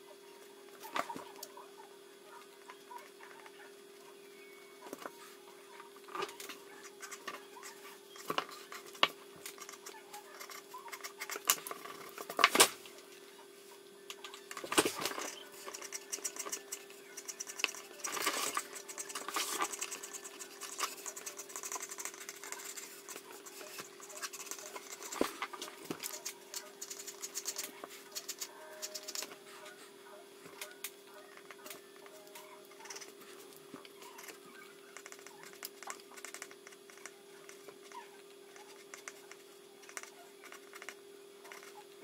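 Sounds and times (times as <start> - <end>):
faint steady hum: 0.0 - 42.0
pencil scratching on paper: 6.4 - 12.2, 15.0 - 29.8, 34.1 - 41.8.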